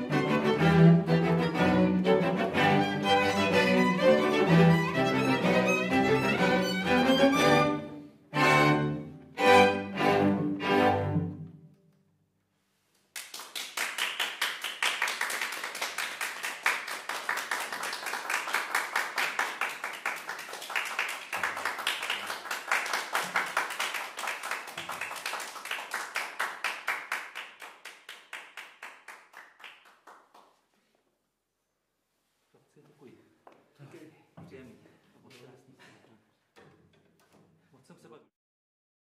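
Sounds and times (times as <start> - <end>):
string ensemble chords: 0.0 - 11.7
audience applauding: 13.2 - 30.6.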